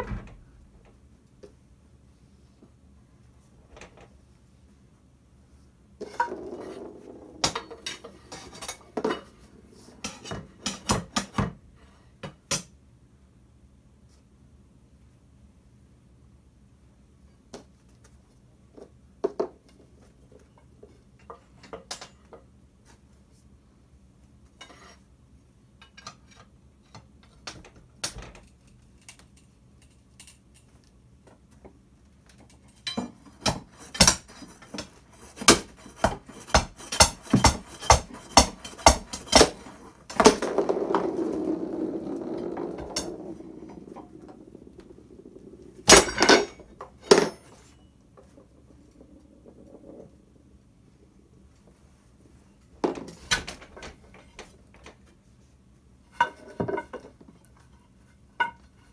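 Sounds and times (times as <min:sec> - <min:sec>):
balls rolling rumble: 0:05.9 - 0:10.8, 0:38.0 - 0:55.0
golf balls clacking on wooden floor: 0:06.0 - 0:11.6, 0:32.5 - 0:50.7, 0:52.8 - 0:55.0.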